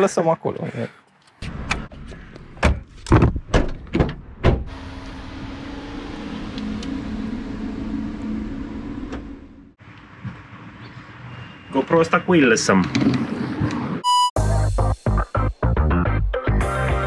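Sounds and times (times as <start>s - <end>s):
electric car hum pulling away: 4.7s - 9.8s.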